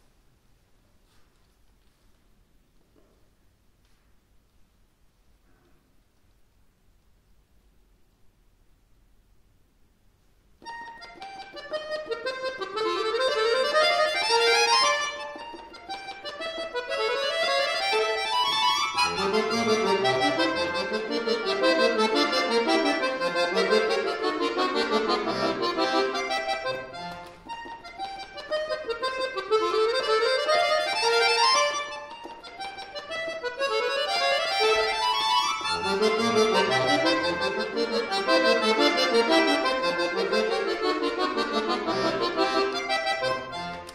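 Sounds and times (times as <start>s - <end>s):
button accordion playing: 10.6s - 43.9s.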